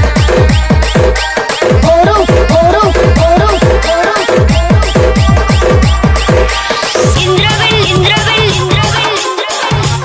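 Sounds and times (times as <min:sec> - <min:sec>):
heavy kick drum: 0:00.0 - 0:09.1
electronic dance music: 0:00.0 - 0:10.0
repeating synth figure: 0:01.8 - 0:09.0.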